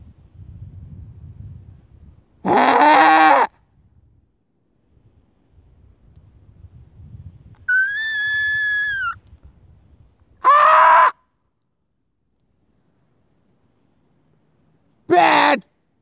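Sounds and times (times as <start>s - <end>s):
person shouting: 15.1s - 15.6s.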